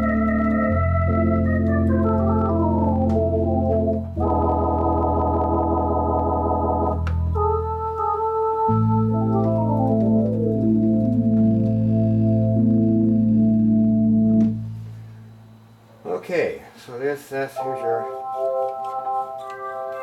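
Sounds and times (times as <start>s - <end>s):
electronic organ playing chords: 0.0s - 15.8s, 17.6s - 20.0s
organ stop tab click: 1.7s - 4.0s, 6.9s - 7.3s, 14.3s - 14.6s.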